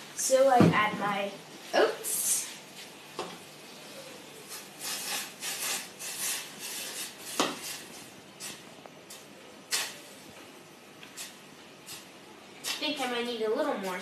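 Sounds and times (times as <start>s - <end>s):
utensil scraping in pot: 3.8s - 10.2s.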